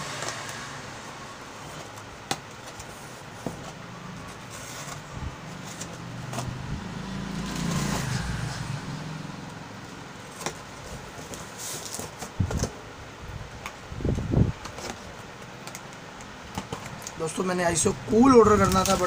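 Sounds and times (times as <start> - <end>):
low vehicle engine hum: 3.2 - 11.2.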